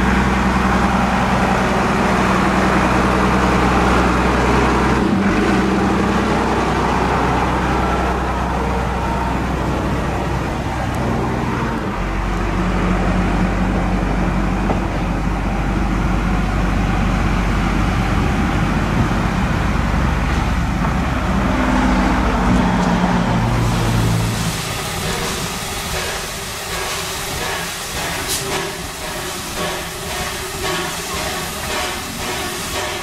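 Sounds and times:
diesel railcar engine rumble: 0.0 - 33.0
steam engine ticking beat: 24.6 - 33.0.

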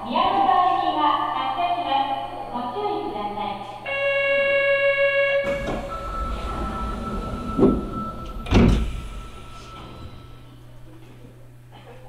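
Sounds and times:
steady high tone: 5.1 - 11.0
train doors thumping shut: 5.4 - 10.5
electronic chime tones: 5.5 - 10.7.

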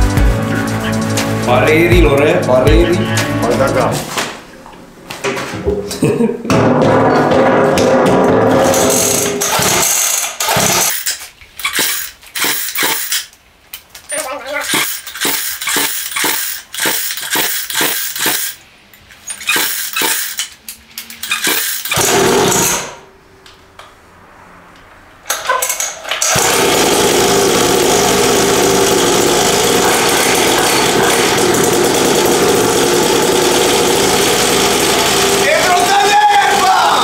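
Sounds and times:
recoil starter pulls: 8.6 - 13.3, 14.6 - 18.6, 19.2 - 23.0, 25.3 - 37.0
two-stroke engine running: 26.3 - 37.0.

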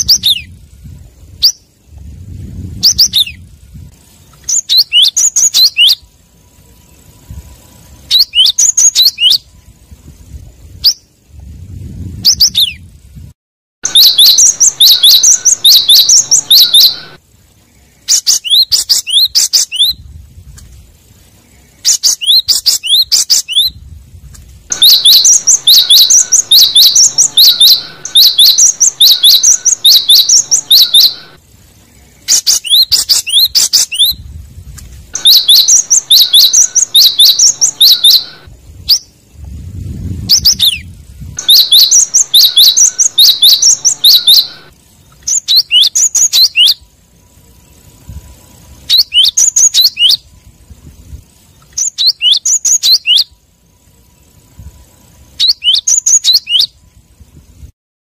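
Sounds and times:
bird fast high chirping: 0.0 - 1.8, 2.6 - 3.5, 4.1 - 6.1, 6.7 - 9.8, 12.2 - 12.9, 13.8 - 20.0, 21.3 - 23.8, 24.7 - 34.3, 35.1 - 46.9, 47.5 - 50.4, 51.4 - 53.4, 54.1 - 56.8.

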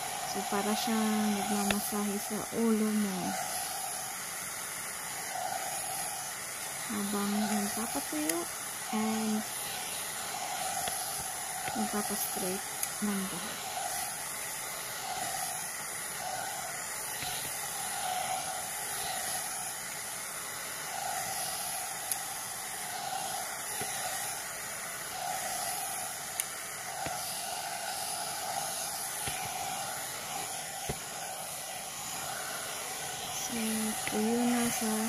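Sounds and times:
hot-air brush blowing air: 0.0 - 35.0.

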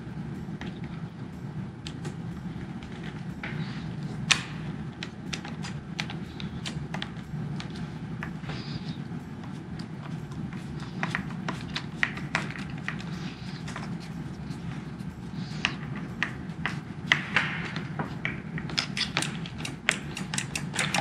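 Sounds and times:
steady low hum: 0.0 - 21.0
screwdriver clicks and taps: 18.7 - 21.0.

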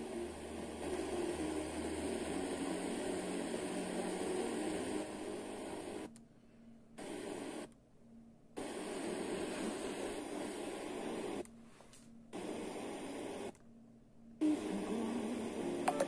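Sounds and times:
radio static hiss: 0.0 - 6.1, 7.0 - 7.7, 8.6 - 11.5, 12.3 - 13.6, 14.4 - 16.0.

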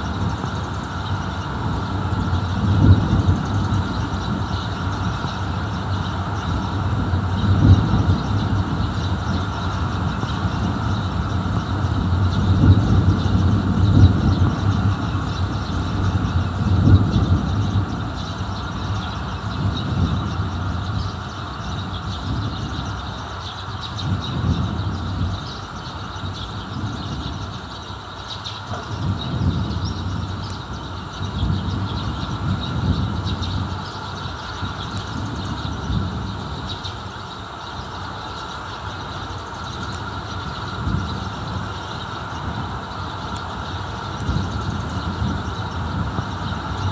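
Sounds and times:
distant thunder rumbling: 0.0 - 23.3
steady hiss: 0.0 - 46.9.

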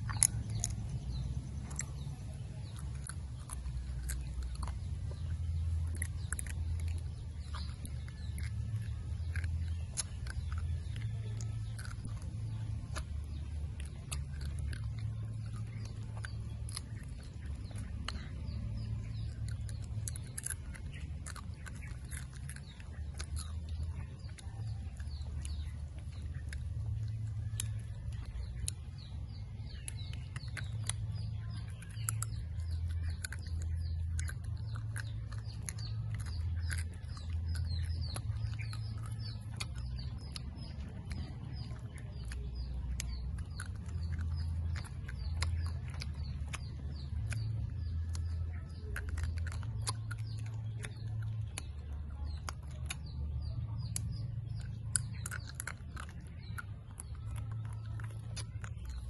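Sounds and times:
birds chirping: 0.0 - 59.0
chewing and lip smacking: 0.0 - 59.0
steady low rumble: 0.0 - 59.0.

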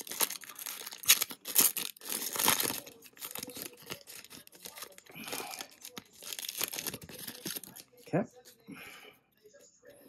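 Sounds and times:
foil pack crinkling and tearing: 0.0 - 8.0.

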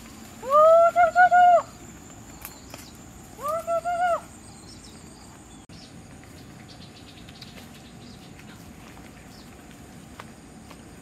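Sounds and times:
faint chirps and ticks: 1.8 - 3.2, 4.4 - 10.9.

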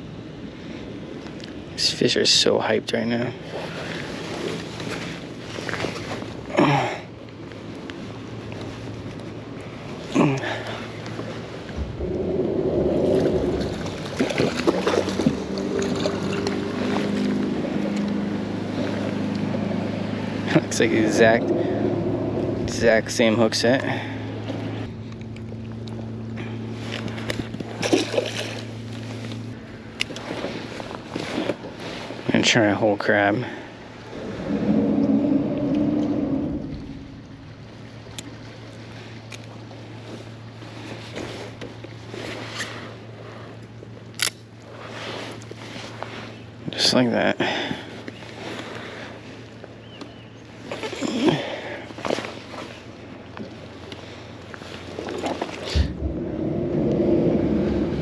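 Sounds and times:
water noise: 0.0 - 58.0
wind: 0.0 - 58.0
engine droning: 0.2 - 58.0
low hum: 6.3 - 32.2, 33.5 - 46.6, 52.3 - 58.0.

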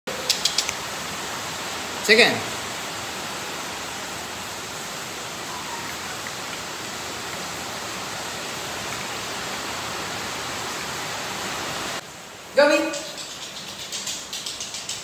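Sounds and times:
steady hiss: 0.1 - 15.0.

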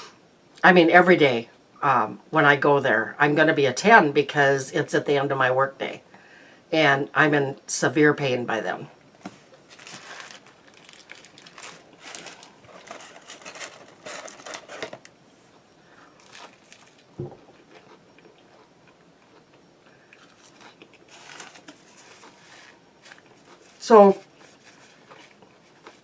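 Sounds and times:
crunchy chewing: 9.6 - 26.0.

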